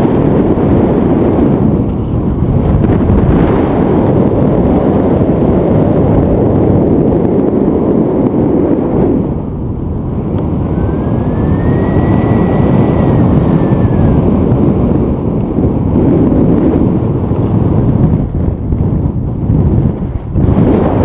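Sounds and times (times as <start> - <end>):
wind buffeting microphone: 0.0 - 21.0
faint high whistle: 10.7 - 14.2.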